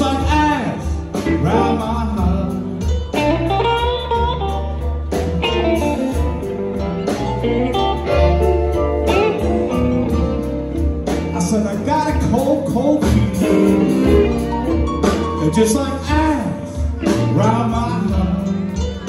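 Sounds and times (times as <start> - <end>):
bass and drums: 0.0 - 19.0
electric guitar lines: 3.2 - 11.3.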